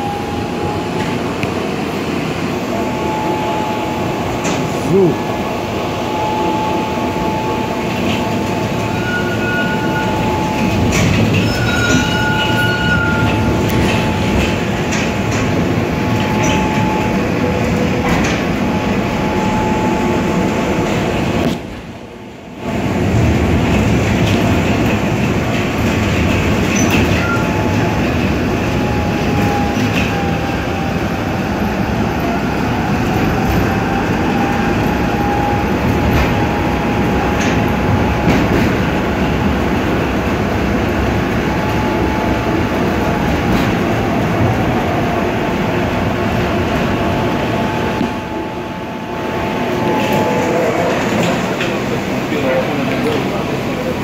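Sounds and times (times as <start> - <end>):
tram whine: 0.0 - 54.0
wheels rumbling on rails: 0.0 - 54.0
high squeals: 8.7 - 14.4.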